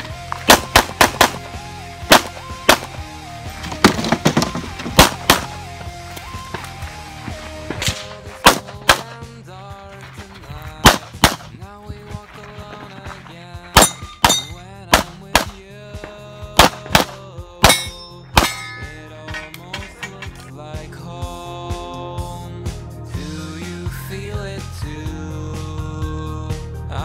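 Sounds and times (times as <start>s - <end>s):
background music: 0.0s - 27.0s
pistol gunshots: 0.4s - 3.0s, 3.8s - 5.7s, 7.8s - 9.2s, 10.8s - 11.6s, 13.8s - 15.6s, 16.6s - 18.9s.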